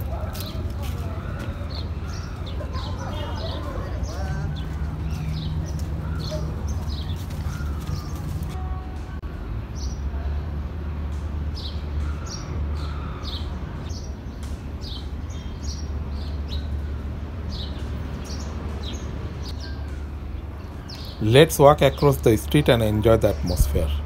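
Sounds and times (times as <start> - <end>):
birds chirping: 0.0 - 10.1, 11.3 - 24.0
low street rumble: 0.0 - 24.0.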